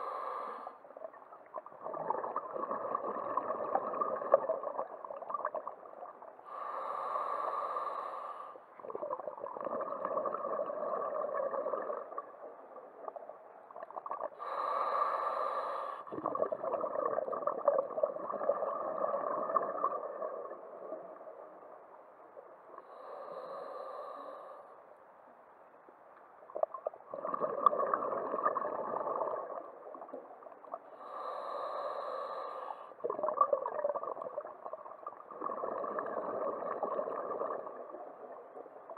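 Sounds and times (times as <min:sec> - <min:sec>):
diver breathing through regulator: 0:00.0 - 0:00.8, 0:06.5 - 0:08.6, 0:14.4 - 0:16.1, 0:22.8 - 0:24.8, 0:30.9 - 0:33.0
exhaled bubbles rushing: 0:01.5 - 0:06.1, 0:08.8 - 0:12.4, 0:16.1 - 0:21.1, 0:26.6 - 0:30.4, 0:33.0 - 0:38.5.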